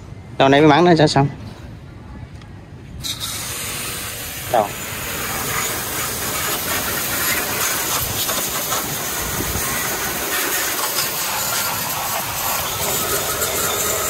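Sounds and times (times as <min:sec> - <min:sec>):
water spray jet hissing: 0:03.0 - 0:14.0.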